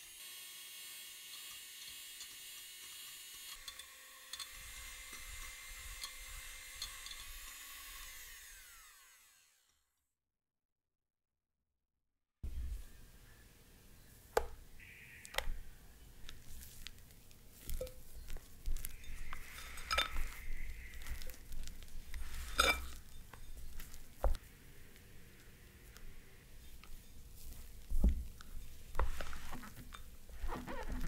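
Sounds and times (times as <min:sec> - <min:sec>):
spatula squishing and scraping glass: 0:16.2 - 0:31.0.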